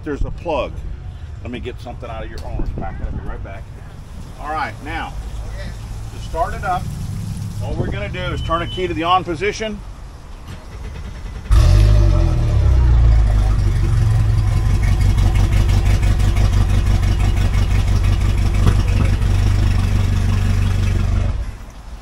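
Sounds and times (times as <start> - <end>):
outboard motor starting and idling: 10.4 - 22.0.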